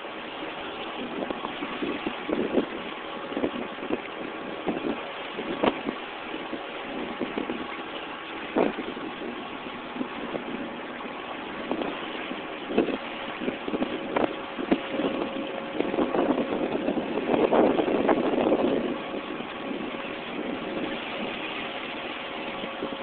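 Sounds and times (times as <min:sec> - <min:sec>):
boat motor running: 0:00.0 - 0:23.0
hull slapping through waves: 0:00.0 - 0:23.0.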